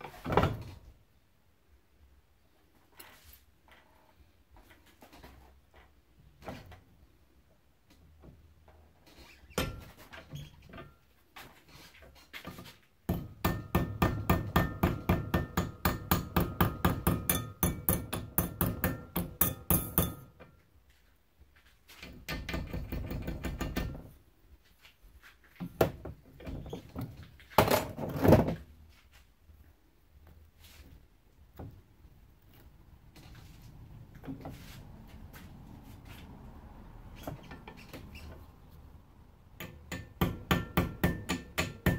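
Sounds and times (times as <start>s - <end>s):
hammer beating sheet metal: 13.1s - 20.4s, 39.6s - 41.9s.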